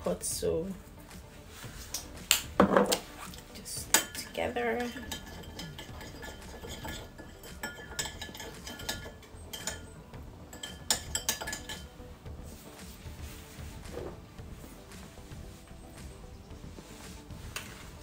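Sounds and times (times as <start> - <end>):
metal spoon clinking in bowl: 3.9 - 11.9.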